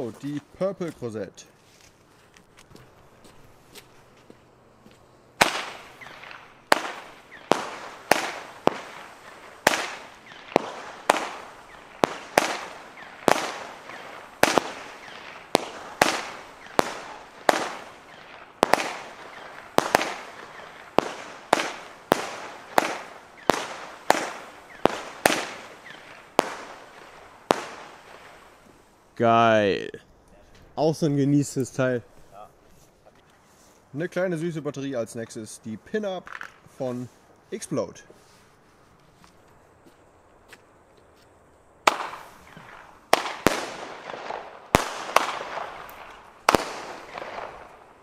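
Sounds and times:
firework shots with crackling: 5.4 - 28.8, 41.8 - 48.0.

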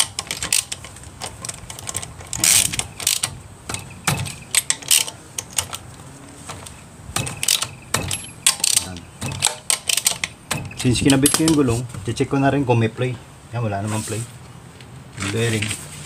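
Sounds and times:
hand ratchet clicking: 0.0 - 5.8, 7.2 - 11.6.

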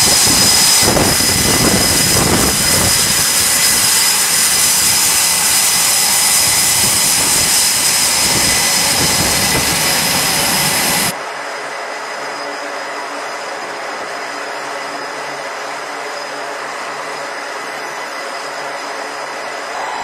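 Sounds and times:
jet engines roaring: 0.0 - 11.2, 19.7 - 20.0
high-pitched jet whine: 0.0 - 20.0.

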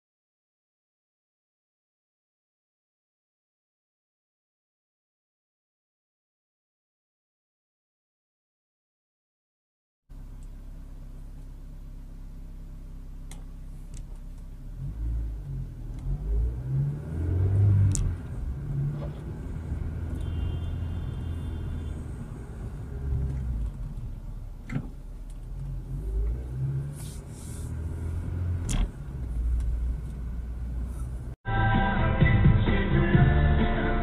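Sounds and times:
car engine and road rumble: 10.1 - 34.0.

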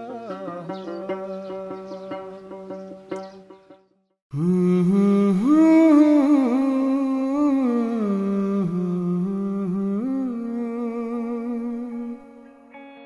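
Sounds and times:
person singing wordless melody: 0.0 - 3.1, 4.3 - 13.0.

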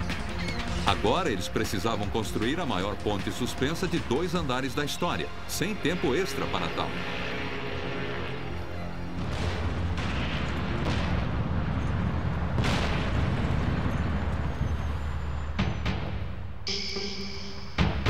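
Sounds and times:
explosive booms: 9.2 - 15.8.

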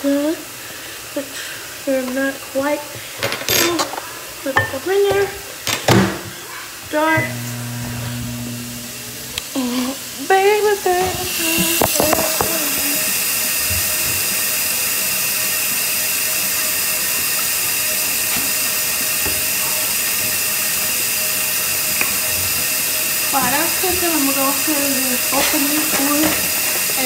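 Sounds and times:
faucet running into sink: 10.6 - 27.0.

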